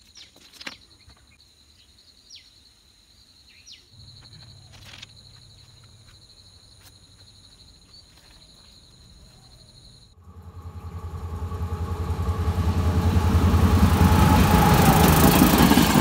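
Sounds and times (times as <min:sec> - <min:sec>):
insects trilling: 0:00.0 - 0:16.0
bird chirps: 0:03.4 - 0:11.0
faint low hum: 0:09.1 - 0:15.2.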